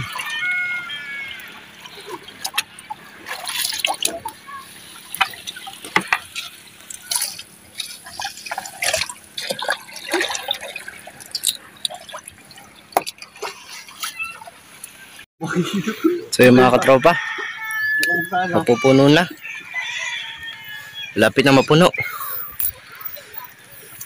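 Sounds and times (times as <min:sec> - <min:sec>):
water splashing and dripping: 0:00.0 - 0:15.3.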